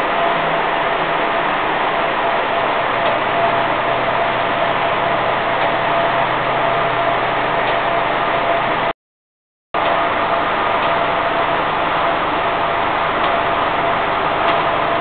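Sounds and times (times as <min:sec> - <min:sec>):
vibrating filter machine running: 0:00.0 - 0:08.9, 0:09.8 - 0:15.0.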